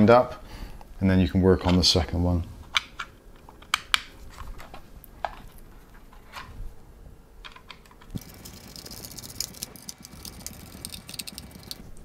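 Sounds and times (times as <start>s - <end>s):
fast fine ticking of screw: 8.2s - 11.8s.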